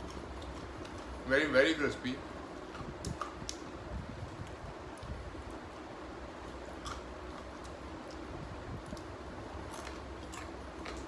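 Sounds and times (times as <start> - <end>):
person chewing crunchy snack: 0.0 - 1.2, 6.4 - 11.0.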